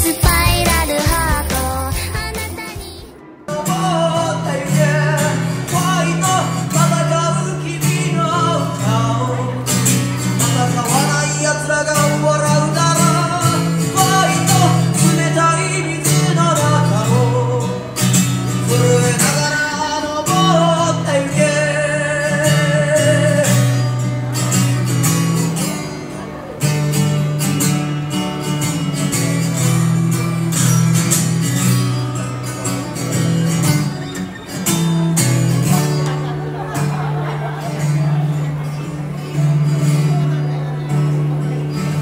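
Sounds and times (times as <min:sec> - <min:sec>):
man singing: 0:00.0 - 0:02.6, 0:03.5 - 0:09.8, 0:10.4 - 0:23.8
acoustic guitar chords: 0:00.0 - 0:42.0.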